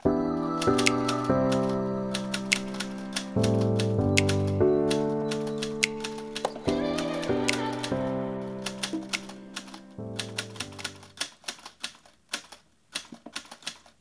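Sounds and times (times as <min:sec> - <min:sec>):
background music of held chords: 0:00.0 - 0:11.2
typewriter key clicks: 0:08.7 - 0:14.0.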